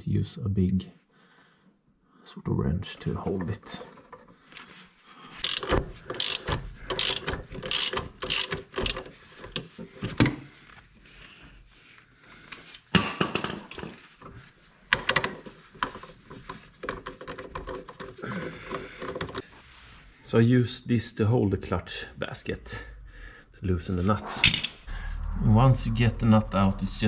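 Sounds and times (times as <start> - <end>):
socket ratchet clicking: 5.4 - 9.1.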